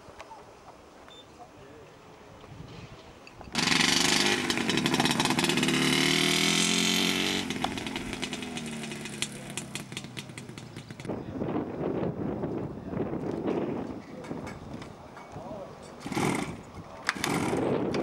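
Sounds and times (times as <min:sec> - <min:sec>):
small motorcycle engine revving: 0:03.5 - 0:11.1, 0:16.0 - 0:18.0.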